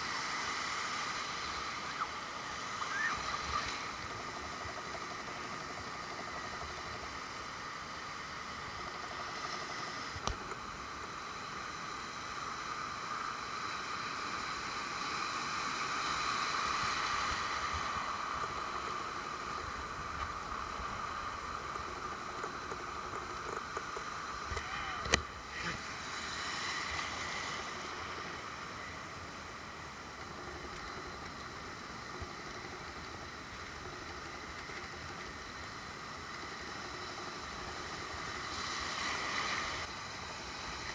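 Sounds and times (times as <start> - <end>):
ocean surf breaking: 24.5 - 29.6.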